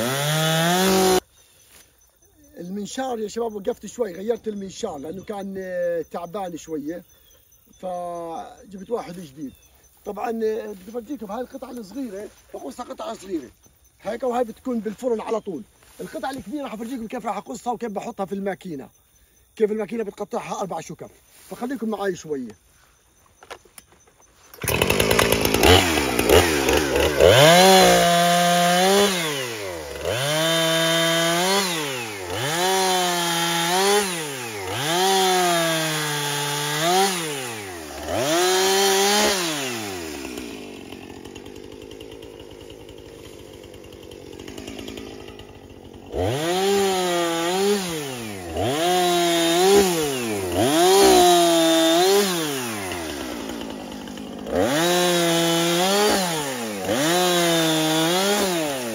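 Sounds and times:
chainsaw revving: 0.0s - 1.3s, 7.3s - 17.0s, 24.4s - 58.9s
chainsaw idling: 0.0s - 17.2s, 23.4s - 58.9s.

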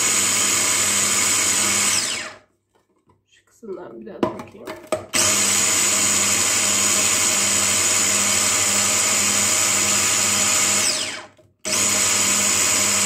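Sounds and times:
hand blender motor whining: 0.0s - 2.4s, 5.1s - 13.0s.

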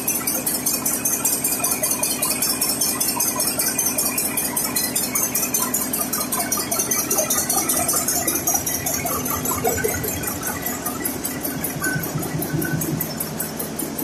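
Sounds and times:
diesel engine clattering: 0.0s - 14.0s.

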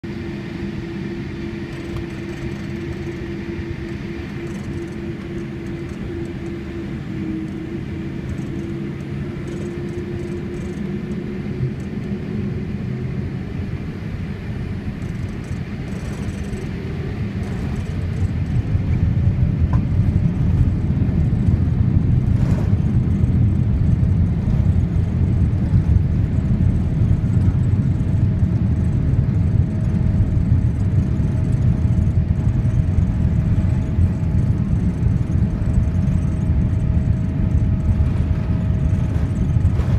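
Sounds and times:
jet engine hum and rumble: 0.0s - 39.9s
faint rising whine: 28.1s - 39.9s.

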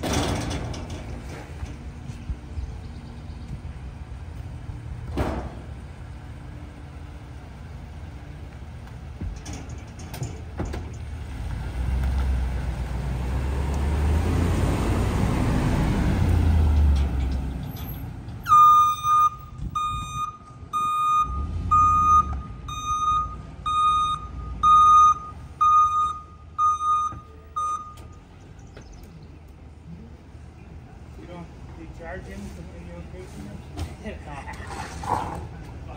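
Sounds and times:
garbage truck engine: 0.0s - 35.9s
backup alarm beeping: 18.5s - 28.2s.

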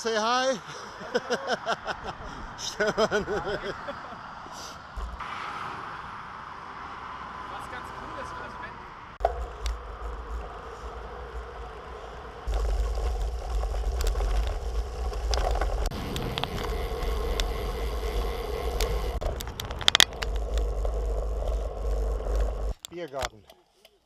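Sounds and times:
wind and tyre rumble: 0.0s - 23.4s
sharp clicks: 12.5s - 24.0s.

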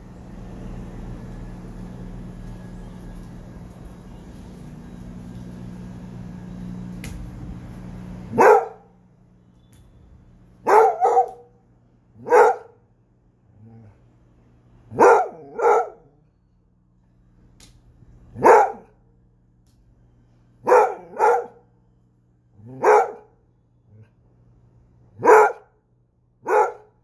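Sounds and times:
low hum: 0.0s - 25.2s
dog barking: 8.3s - 8.9s, 10.6s - 11.6s, 12.2s - 12.8s, 14.9s - 16.2s, 18.4s - 19.0s, 20.6s - 21.7s, 22.6s - 23.4s, 25.2s - 25.8s, 26.4s - 27.0s.

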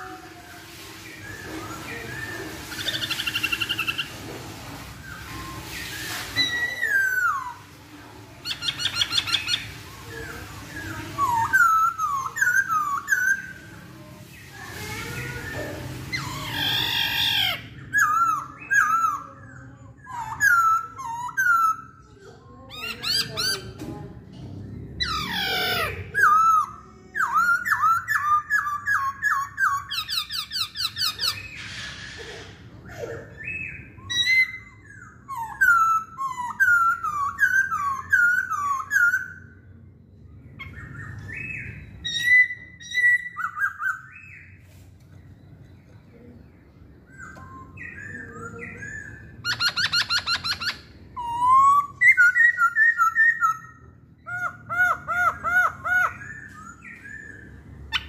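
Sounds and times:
loud sweeping bird calls: 0.7s - 4.2s, 8.4s - 19.4s, 46.8s - 58.0s.

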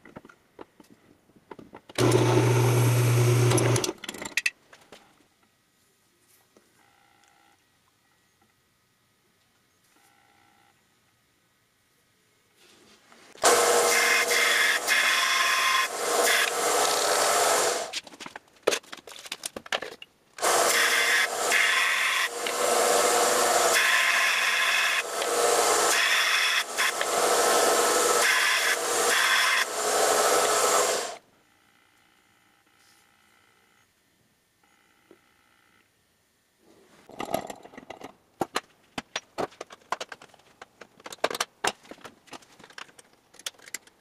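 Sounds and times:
belt sander grinding metal: 2.0s - 3.9s, 13.4s - 17.9s, 20.4s - 31.2s.

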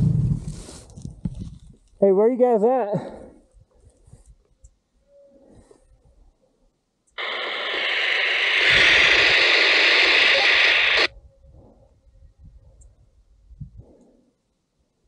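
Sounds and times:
radio static hiss: 7.2s - 11.1s.

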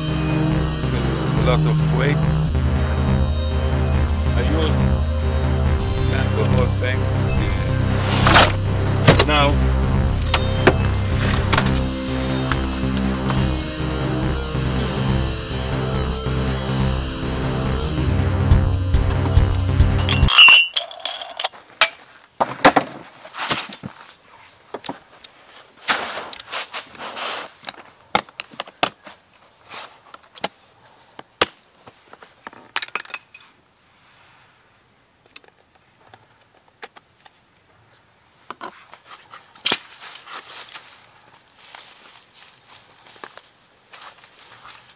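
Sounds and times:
rustling: 20.8s - 28.1s, 37.3s - 44.9s.

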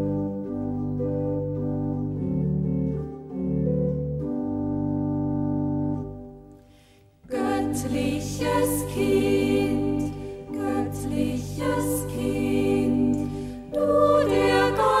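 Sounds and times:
organ chords: 0.0s - 6.7s, 7.3s - 15.0s
instrumental accompaniment: 0.0s - 15.0s
voices singing: 7.3s - 15.0s.

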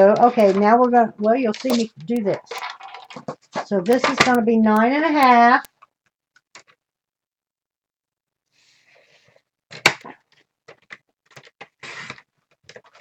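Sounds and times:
paper rustling: 0.0s - 4.4s.

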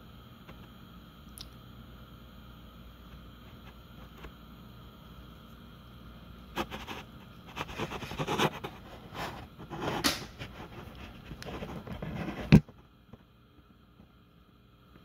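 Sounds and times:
sharp loud click: 10.0s - 10.3s.

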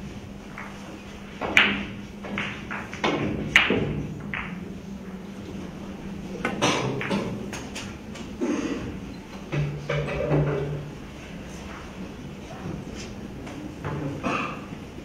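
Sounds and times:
billiard balls clicking: 0.5s - 5.6s, 6.4s - 8.4s.

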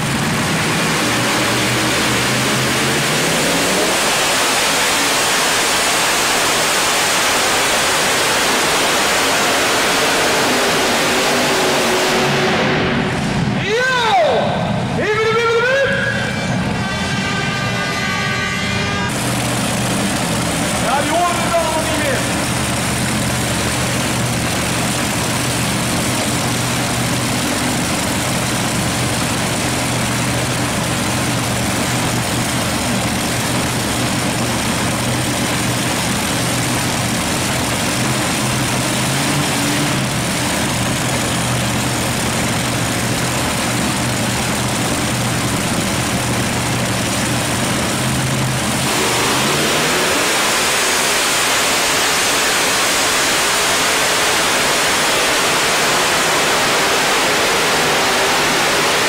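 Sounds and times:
tractor engines rumbling and revving: 0.0s - 59.0s
loud hissing rush: 48.4s - 59.0s.

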